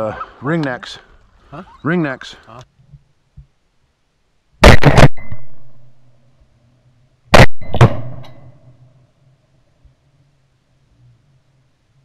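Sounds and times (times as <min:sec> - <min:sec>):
shotgun shots: 0:04.6 - 0:05.8, 0:07.3 - 0:08.5.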